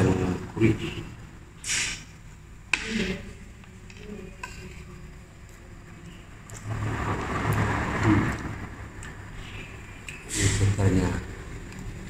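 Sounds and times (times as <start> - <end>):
steady rushing noise: 6.6 - 10.0.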